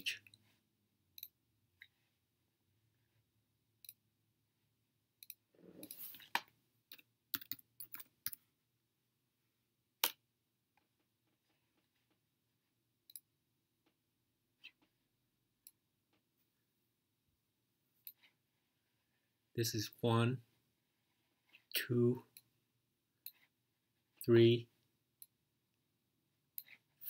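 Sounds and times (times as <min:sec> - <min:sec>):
computer keyboard keystrokes: 0:07.3 - 0:08.0.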